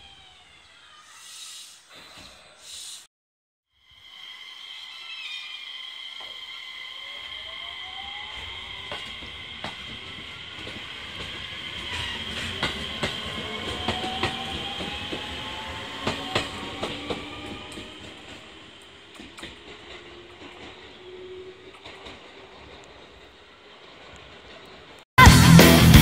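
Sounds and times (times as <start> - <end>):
electric train motor whine: 0.0 - 1.4, 3.8 - 22.0
train wheels clicking on rail joints: 5.9 - 25.0.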